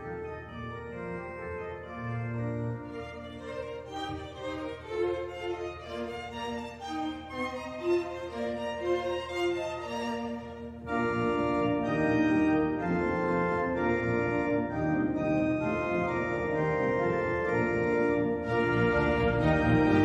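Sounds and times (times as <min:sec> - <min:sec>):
organ-like chords: 0:00.0 - 0:20.0.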